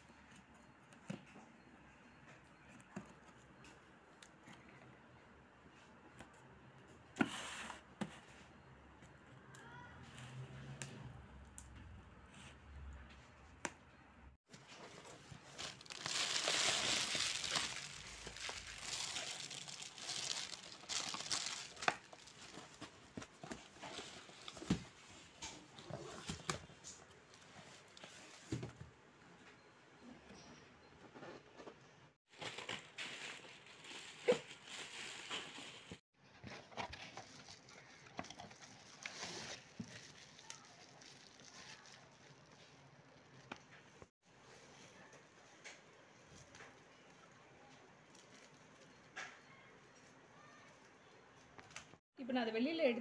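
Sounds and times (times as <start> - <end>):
bubble wrap crinkling: 14.6 - 24.8, 32.3 - 44.1
cardboard box being opened: 14.9 - 24.8.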